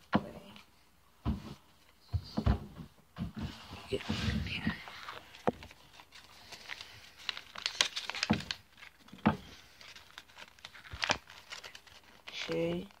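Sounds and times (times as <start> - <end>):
paper rustling and crinkling: 3.4 - 13.0.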